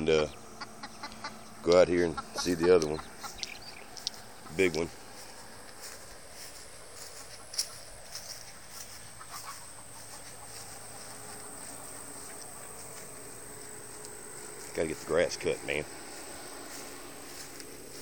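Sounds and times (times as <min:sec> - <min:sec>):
chickens clucking: 0:00.0 - 0:18.0
footsteps through long grass: 0:00.7 - 0:18.0
high-pitched insect buzz: 0:05.2 - 0:18.0.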